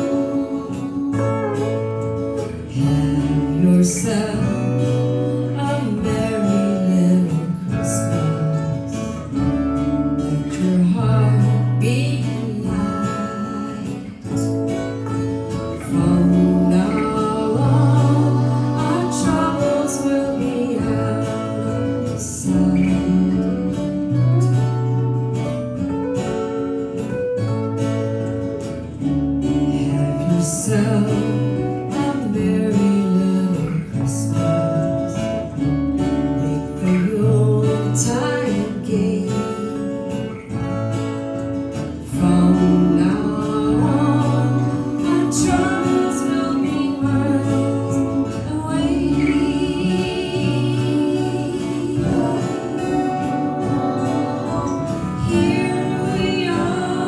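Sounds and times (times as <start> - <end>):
woman singing: 0.0 - 25.4, 29.4 - 40.8, 41.4 - 57.0
acoustic guitars playing: 0.0 - 57.0.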